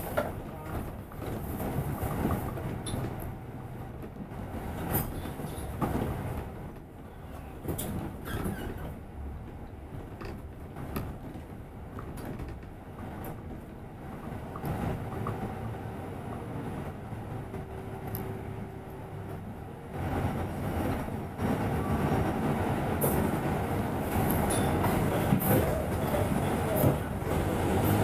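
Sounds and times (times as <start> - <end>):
bus engine and road rumble: 0.0 - 28.0.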